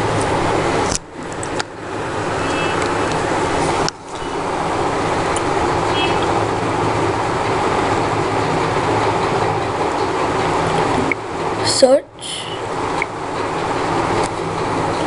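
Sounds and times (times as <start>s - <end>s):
steady loud hiss: 0.0s - 9.0s.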